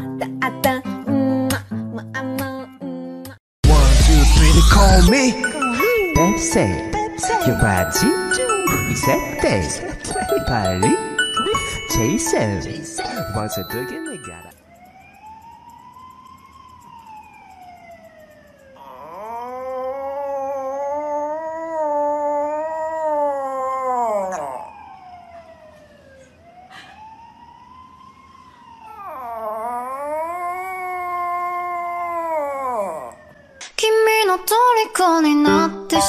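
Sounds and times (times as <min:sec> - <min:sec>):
puppy wailing: 0:18.8 - 0:24.8, 0:28.9 - 0:33.2
puppy howling: 0:18.8 - 0:25.1, 0:28.8 - 0:33.4.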